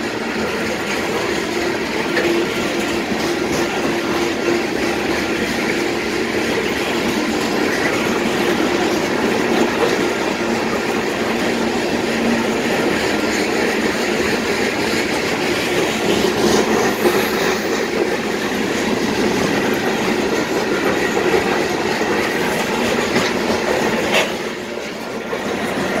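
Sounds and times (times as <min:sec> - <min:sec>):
freight train wheels rumbling: 0:00.0 - 0:26.0.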